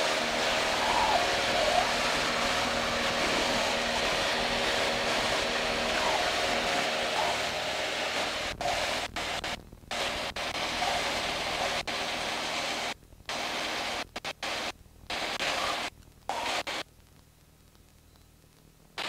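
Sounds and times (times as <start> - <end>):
aircraft engine and airflow: 0.0 - 14.0.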